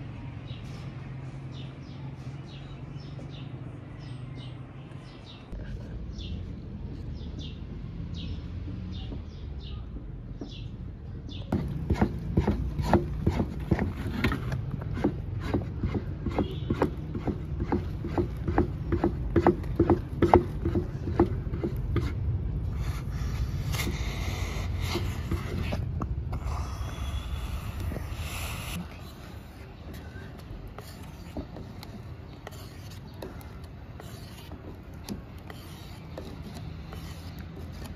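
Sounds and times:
birds chirping: 0.1s - 14.4s, 22.6s - 37.9s
scraping and squelching of mash: 11.5s - 37.9s
stick beating porridge in a pot: 11.5s - 37.9s.

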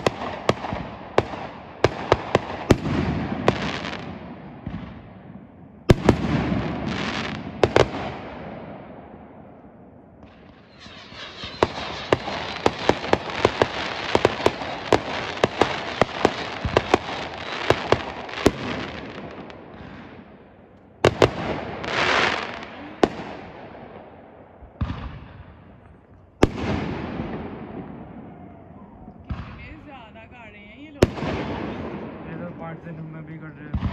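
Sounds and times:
fireworks crackling and popping: 0.0s - 5.0s, 5.8s - 8.5s, 10.2s - 23.6s, 29.2s - 33.9s
loud firework bangs: 0.0s - 30.1s, 30.9s - 33.9s
firework hiss: 10.5s - 17.8s.

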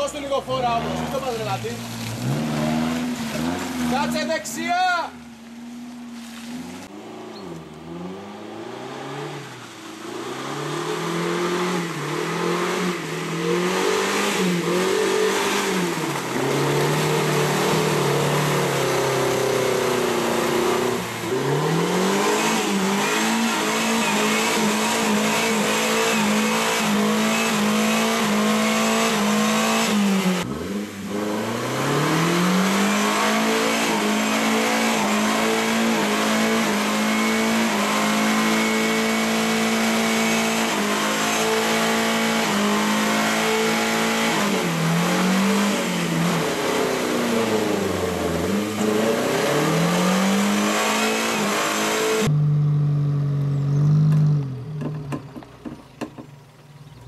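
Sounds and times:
engine revving hard: 6.8s - 52.5s.

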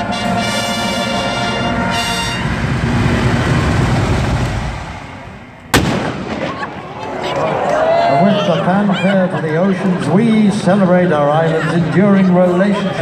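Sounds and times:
brass band chord: 0.0s - 3.4s
crowd applauding: 6.9s - 8.6s.

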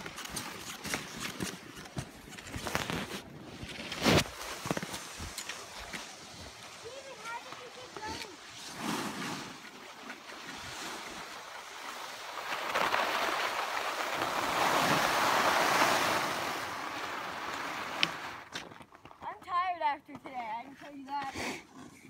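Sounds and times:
skis hissing on snow: 4.1s - 9.6s, 10.8s - 18.5s.

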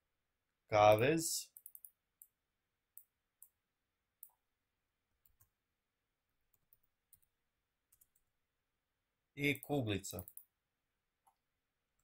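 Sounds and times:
computer mouse click: 0.9s - 2.4s, 5.2s - 5.5s, 6.5s - 7.3s, 7.9s - 8.3s, 9.6s - 10.5s.

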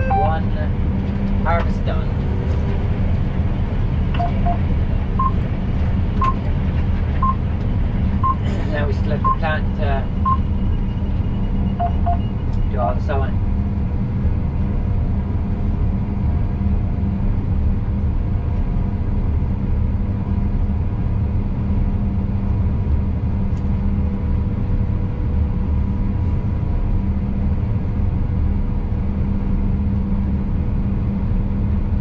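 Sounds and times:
combine harvester engine rumble: 0.0s - 32.0s.

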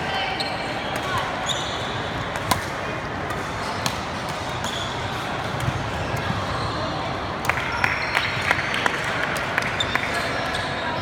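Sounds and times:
shoe squeaks: 0.3s - 2.0s, 4.6s - 5.1s
rackets hitting shuttlecock: 2.3s - 6.4s.

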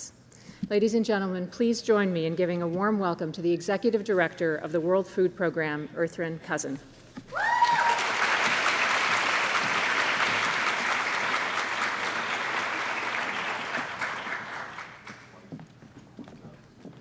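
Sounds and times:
audience applauding: 7.4s - 15.4s.

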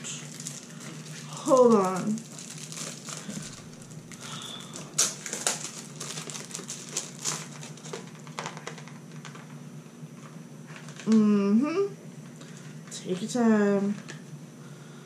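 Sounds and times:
packaging crinkling: 0.0s - 9.5s.

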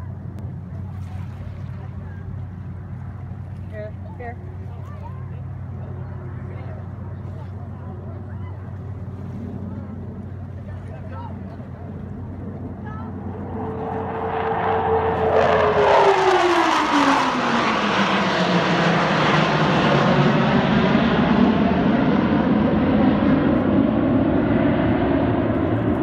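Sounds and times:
jets flying past roaring: 5.4s - 26.0s.

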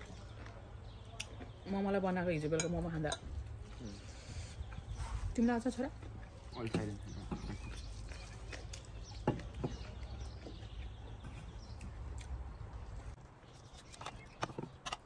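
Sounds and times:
chewing and lip smacking: 7.5s - 14.3s.

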